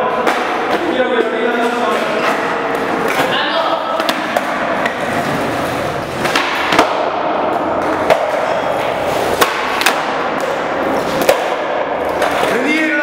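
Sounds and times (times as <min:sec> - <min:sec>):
steady background noise: 0:00.0 - 0:13.0
skateboard clacking on hard floor: 0:06.2 - 0:13.0.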